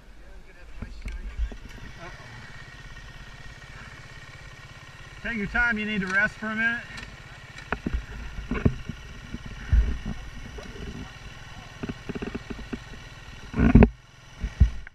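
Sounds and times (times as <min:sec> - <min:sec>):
dirt bike engine idling: 0:00.0 - 0:14.9
low thumps: 0:06.9 - 0:14.9.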